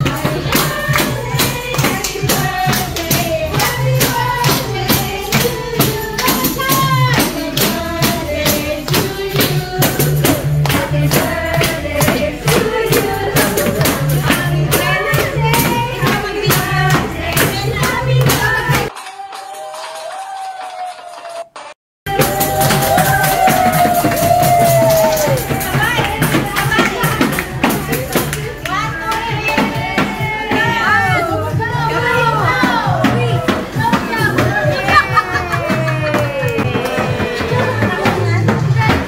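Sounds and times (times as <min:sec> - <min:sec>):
people singing over a beat: 0:00.0 - 0:19.2, 0:22.1 - 0:39.0
hand claps: 0:17.3 - 0:21.8.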